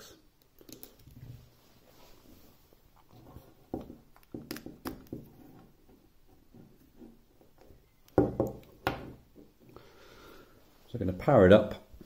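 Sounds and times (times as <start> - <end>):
cable plugging clicks and knocks: 3.8 - 5.3.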